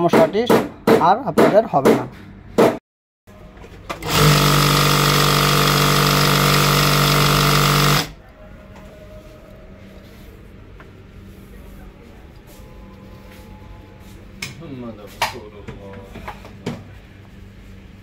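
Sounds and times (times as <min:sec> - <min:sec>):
industrial sewing machine running: 0:04.0 - 0:08.2.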